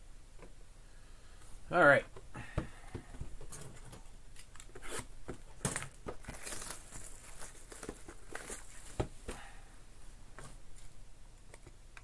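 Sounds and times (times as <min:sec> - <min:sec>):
plastic shrink wrap crinkling: 0:04.4 - 0:09.0.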